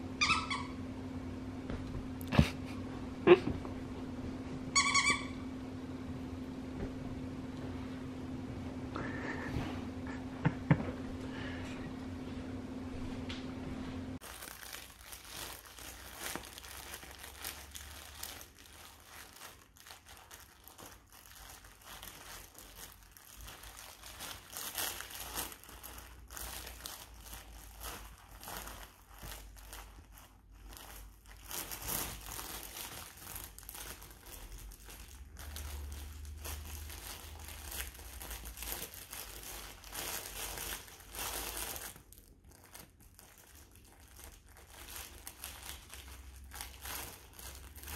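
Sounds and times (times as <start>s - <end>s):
dog toy crinkling: 0.2s - 0.7s, 4.8s - 5.4s, 14.2s - 47.9s.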